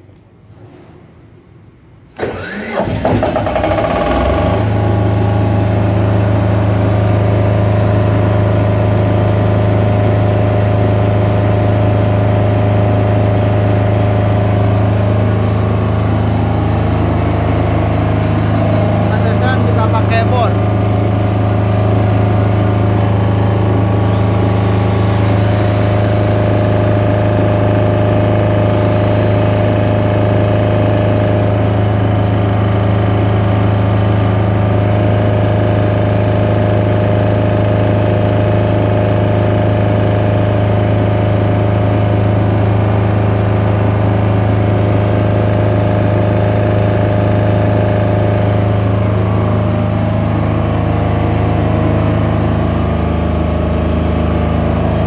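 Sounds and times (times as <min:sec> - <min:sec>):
generator engine humming: 0:02.0 - 0:55.0
faint high whine: 0:23.9 - 0:31.7.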